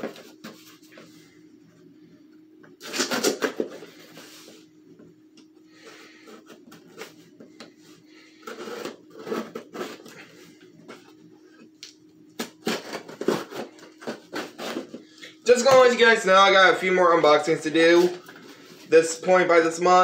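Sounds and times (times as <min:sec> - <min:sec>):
cardboard box tearing: 0:02.8 - 0:03.8, 0:08.4 - 0:10.1, 0:12.4 - 0:15.0
cardboard scraping and rustling: 0:08.4 - 0:10.2, 0:12.4 - 0:15.9.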